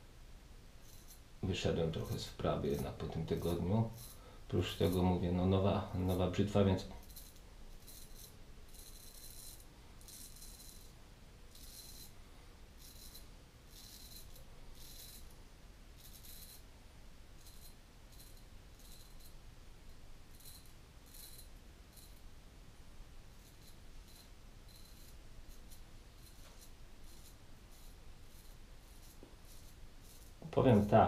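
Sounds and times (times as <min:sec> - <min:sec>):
straight razor scraping stubble: 0:02.0 - 0:05.2.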